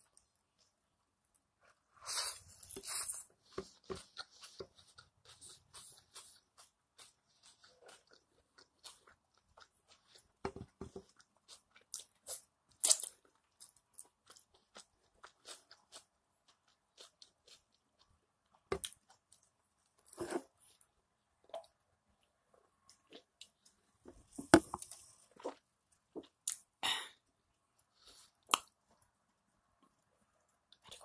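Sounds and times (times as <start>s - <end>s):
person chewing wetly: 2.6s - 19.5s.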